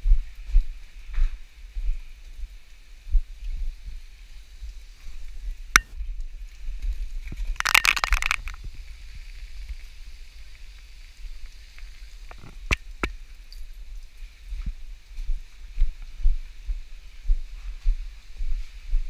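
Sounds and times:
crackling: 5.6s - 14.2s
camera handling: 7.6s - 8.6s.

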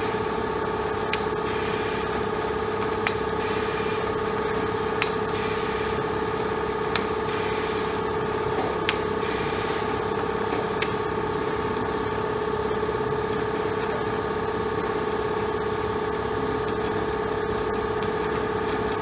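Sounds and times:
machine humming: 0.0s - 19.0s
sharp machine click: 1.0s - 9.8s.

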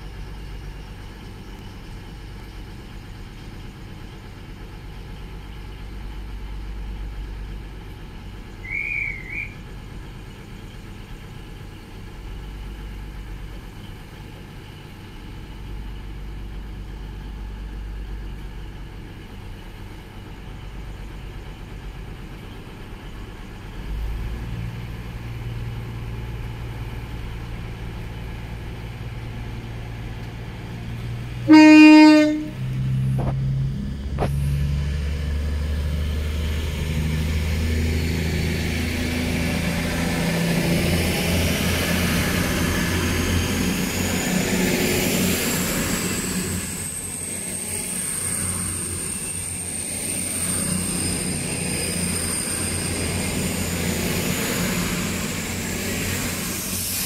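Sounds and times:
diesel train engines idling: 0.0s - 57.0s
train horn toot: 31.5s - 32.8s.

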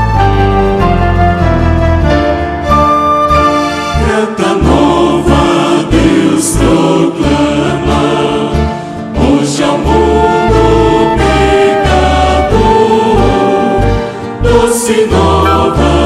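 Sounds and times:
instrumental accompaniment with bass: 0.0s - 16.0s
choir singing a hymn: 3.9s - 16.0s.

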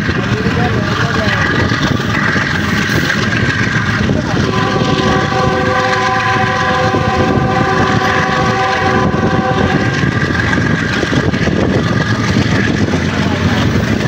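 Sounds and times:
rushing air: 0.0s - 14.0s
train wheels on rails: 0.0s - 14.0s
train horn blast: 4.4s - 10.3s.

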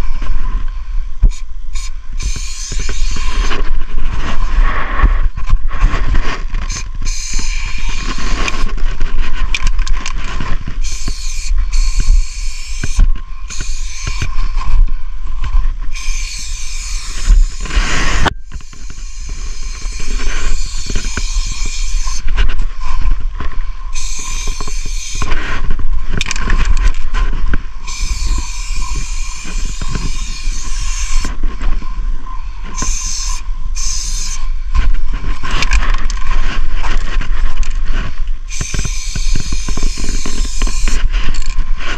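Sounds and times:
spray paint can hissing: 1.3s - 3.6s, 6.7s - 8.6s, 10.8s - 14.3s, 15.9s - 22.2s, 23.9s - 25.3s, 27.8s - 31.3s, 32.8s - 34.5s, 38.5s - 41.6s.

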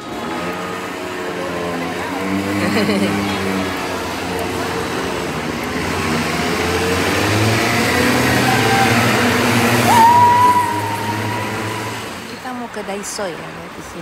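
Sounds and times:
road traffic engines: 0.0s - 14.0s
high steady tone with upward slide: 5.8s - 12.4s.

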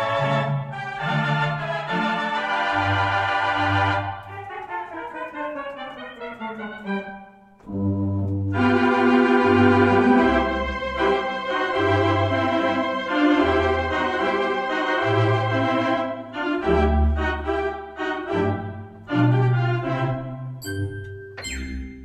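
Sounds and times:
sustained organ chords: 6.5s - 20.9s
low organ pedal bass notes: 7.7s - 12.8s.

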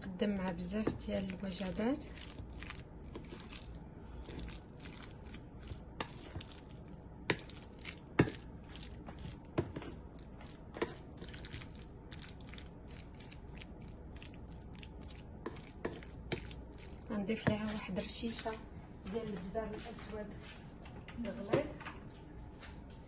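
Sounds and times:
wet squishing of mashing: 0.6s - 18.5s.

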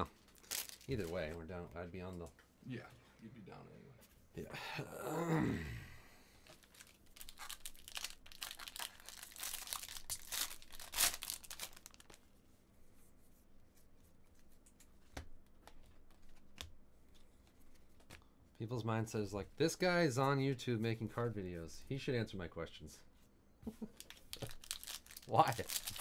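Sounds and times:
foil wrapper tearing and crinkling: 0.3s - 1.3s, 6.6s - 12.2s, 24.0s - 26.0s.

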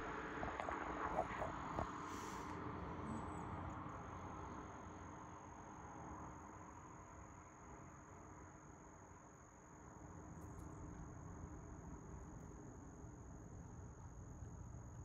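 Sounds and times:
distant traffic hiss: 0.0s - 5.3s.

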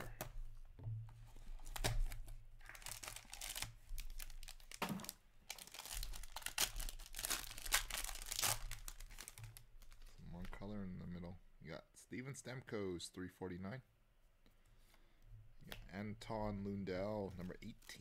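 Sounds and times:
foil wrapper crinkling and ripping: 1.6s - 10.1s.

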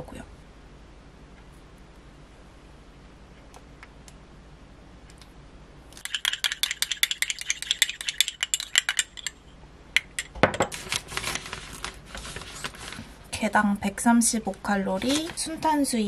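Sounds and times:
spoon stirring in ceramic bowl: 6.0s - 10.7s.

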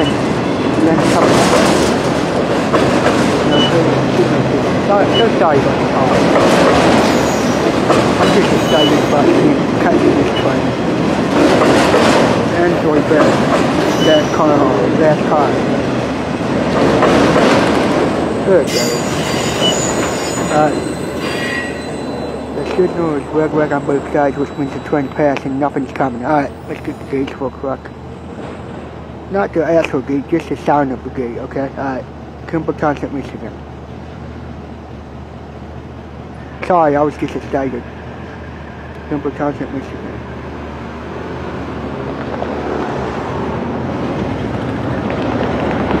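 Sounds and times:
train wheels rumbling on rail: 0.0s - 46.0s
high metallic wheel squeal: 7.0s - 9.2s, 13.8s - 14.6s, 18.5s - 27.6s.

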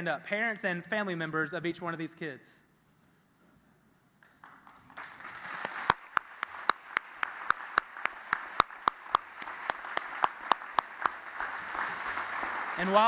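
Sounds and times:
sharp claps close by: 4.2s - 13.0s
crowd applauding: 4.4s - 13.0s.

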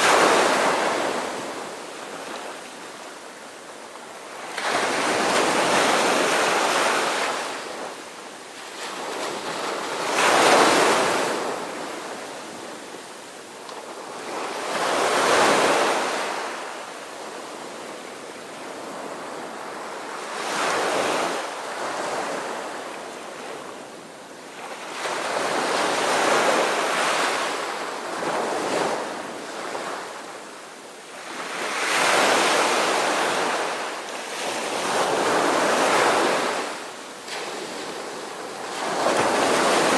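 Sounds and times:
ocean waves breaking: 0.0s - 3.4s, 4.2s - 13.0s, 31.2s - 39.9s.

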